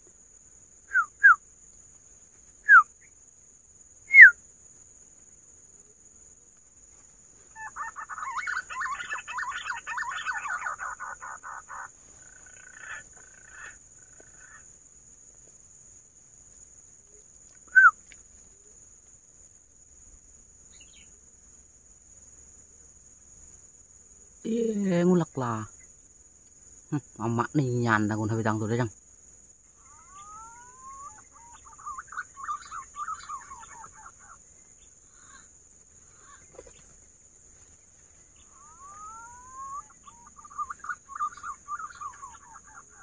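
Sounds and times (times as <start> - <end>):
high insect drone: 0.0 - 43.0
pigeon whistles falling in pitch: 4.1 - 4.4, 17.7 - 18.0
rapid warbling bird chatter: 7.5 - 14.7, 29.7 - 37.0, 38.3 - 43.0.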